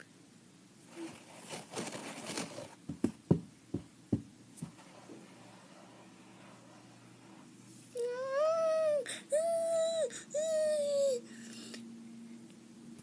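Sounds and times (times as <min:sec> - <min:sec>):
rustling handling noise: 0:00.8 - 0:03.2.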